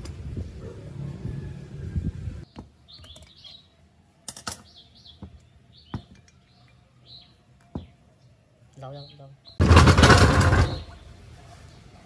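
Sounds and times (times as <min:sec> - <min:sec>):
small birds chirping: 0:02.4 - 0:09.6.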